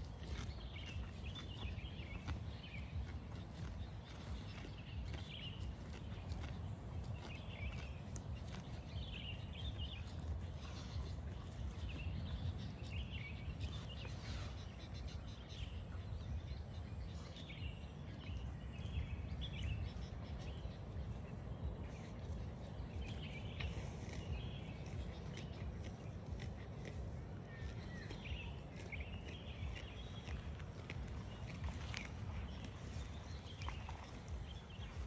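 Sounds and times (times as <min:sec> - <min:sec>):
small birds chirping: 0:00.0 - 0:35.0
steady low rumble: 0:00.0 - 0:35.0.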